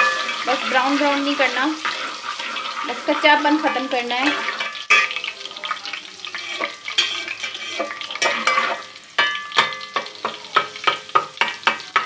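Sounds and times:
utensil scraping metal pot: 0.0s - 9.0s
paste sizzling in hot oil: 0.0s - 12.0s.

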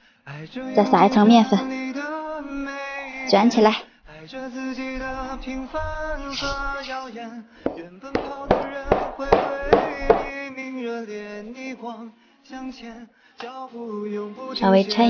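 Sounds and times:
song with singing: 0.0s - 15.0s
knife chopping on steel worktop: 7.7s - 10.3s.

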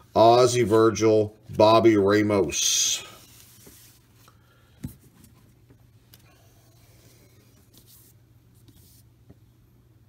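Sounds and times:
cards shuffled on a table: 3.2s - 9.4s.

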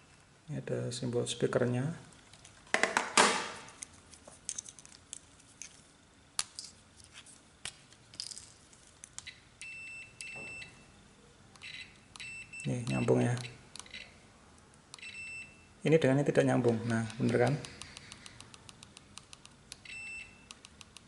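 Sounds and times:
multimeter continuity beeps: 9.2s - 10.9s, 11.6s - 14.1s, 15.0s - 15.7s, 19.3s - 20.7s.

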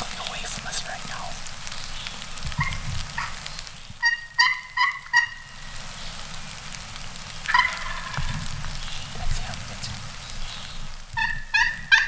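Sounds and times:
turkey yelping: 2.6s - 3.4s, 4.0s - 5.6s, 7.5s - 8.3s, 11.2s - 12.0s.

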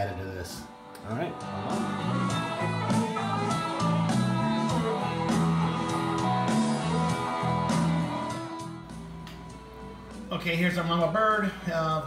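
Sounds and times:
guitar music with steady beat: 0.6s - 11.5s.

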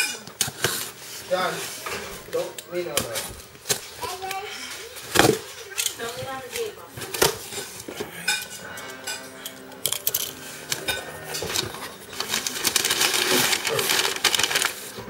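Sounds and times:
packing paper rustling: 9.8s - 15.0s.

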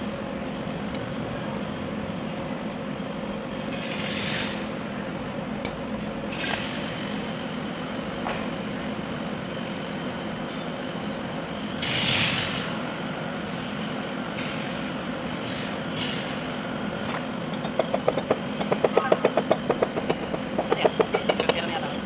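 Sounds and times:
mechanical hum: 0.0s - 22.0s.

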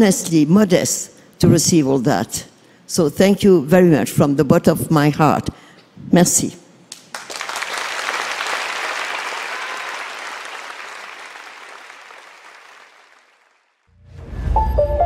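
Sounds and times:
audience applauding: 7.0s - 13.9s.

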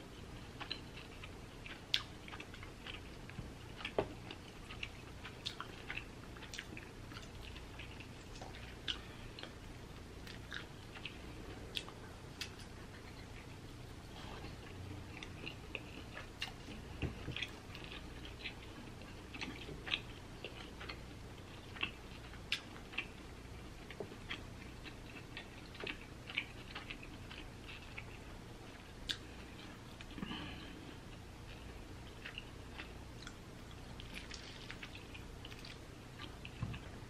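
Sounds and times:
person chewing: 0.2s - 37.0s.

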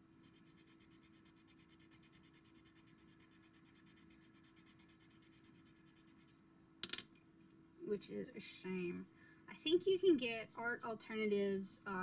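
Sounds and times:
pencil scratching on paper: 0.2s - 6.4s.

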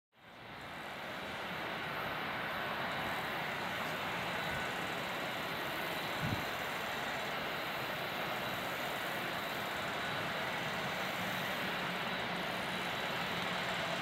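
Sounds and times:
jet engines rushing: 0.2s - 14.0s.

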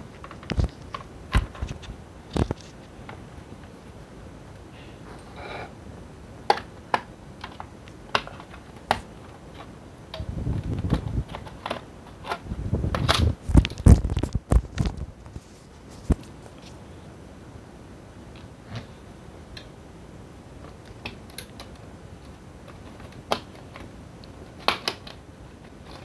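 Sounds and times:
plastic clips clicking: 6.5s - 14.2s, 24.6s - 25.2s
plastic scraping and rubbing: 10.5s - 16.8s.

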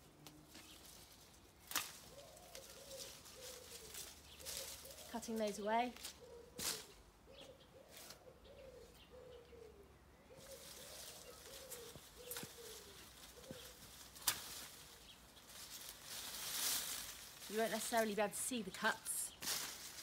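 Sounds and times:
loppers snipping branches: 1.6s - 4.8s, 11.7s - 15.0s
pigeon cooing: 2.1s - 5.1s, 6.2s - 13.8s.

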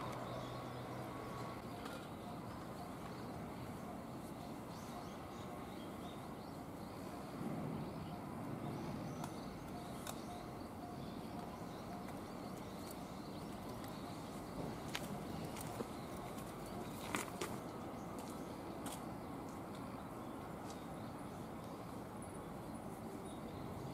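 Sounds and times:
faint bird chirps: 0.0s - 17.2s.

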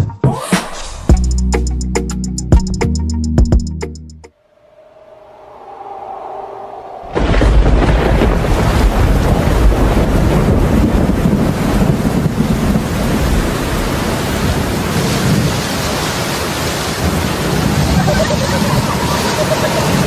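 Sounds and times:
thunder rumble: 4.6s - 20.0s
heavy rain hiss: 11.3s - 20.0s.

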